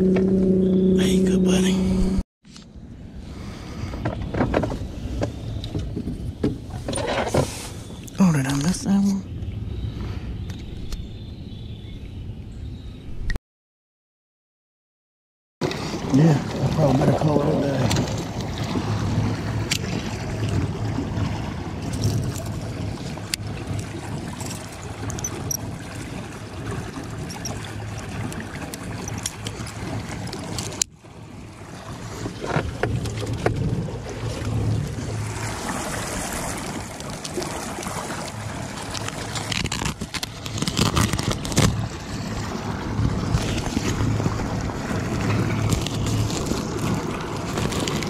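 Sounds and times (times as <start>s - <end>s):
water lapping around boat: 0.0s - 12.3s, 15.6s - 48.0s
wind: 0.0s - 13.4s, 15.6s - 48.0s
fishing tackle clicks and knocks: 27.2s - 27.6s, 28.3s - 29.8s.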